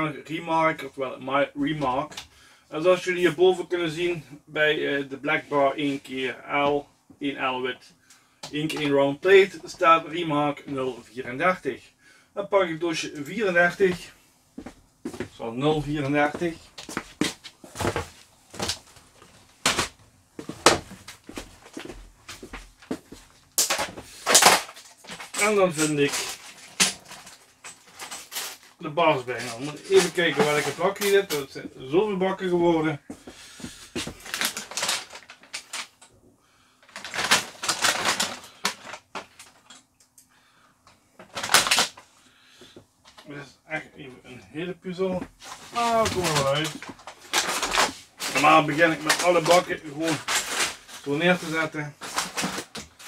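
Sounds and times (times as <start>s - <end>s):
plastic boxes knocking and clattering: 16.8s - 19.0s, 19.6s - 28.4s, 33.6s - 36.0s, 36.9s - 39.7s, 41.2s - 42.0s, 45.1s - 53.0s.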